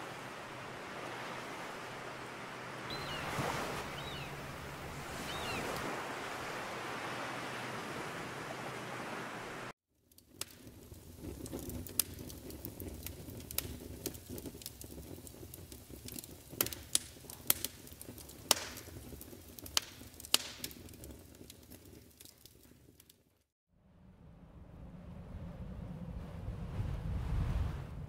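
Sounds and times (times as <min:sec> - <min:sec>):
logs crackling and popping: 0:10.1 - 0:23.4
low fire rumble: 0:10.2 - 0:23.1, 0:23.9 - 0:28.0.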